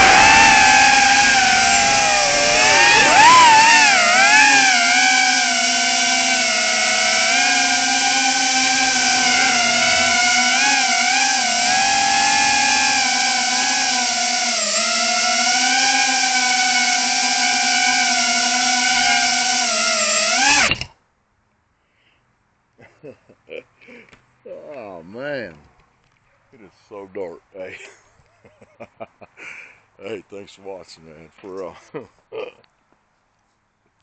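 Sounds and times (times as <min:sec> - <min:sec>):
drone motors whining: 0:00.0 - 0:20.9.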